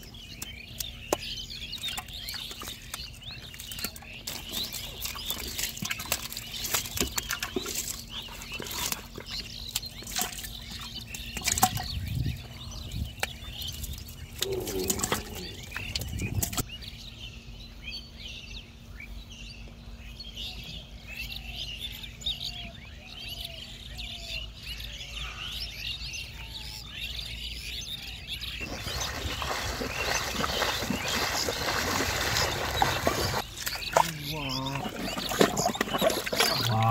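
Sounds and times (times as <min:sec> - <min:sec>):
birds chirping: 0:00.0 - 0:36.9
wading through shallow water: 0:02.1 - 0:16.6, 0:28.6 - 0:36.9.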